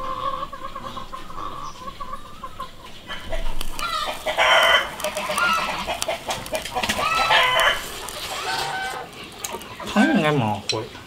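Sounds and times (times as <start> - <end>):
chickens clucking: 0.0 - 11.0
rooster crowing: 3.8 - 6.0, 6.7 - 9.1.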